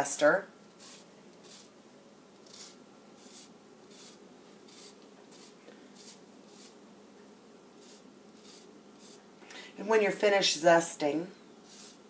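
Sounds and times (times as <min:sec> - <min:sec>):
zester rasping lemon peel: 0:00.8 - 0:01.7, 0:02.4 - 0:06.8, 0:07.8 - 0:09.2, 0:11.6 - 0:12.0.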